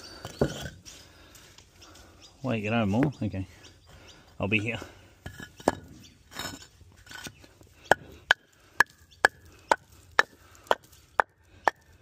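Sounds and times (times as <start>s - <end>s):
hammer striking concrete paver: 7.9s - 12.0s.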